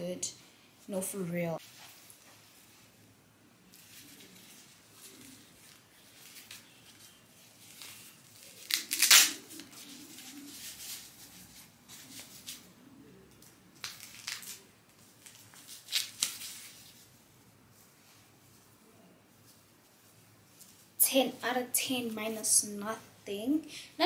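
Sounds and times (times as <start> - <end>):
fabric rustling: 1.6 - 3.0, 3.6 - 12.8, 13.8 - 21.0
hook-and-loop straps ripping: 7.6 - 9.8, 13.8 - 16.8.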